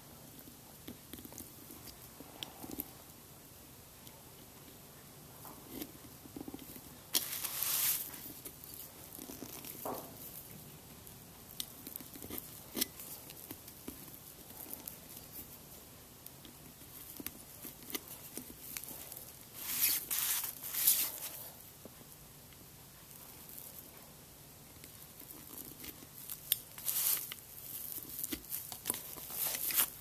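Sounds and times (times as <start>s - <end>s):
scraping rustle: 7.2s - 8.2s.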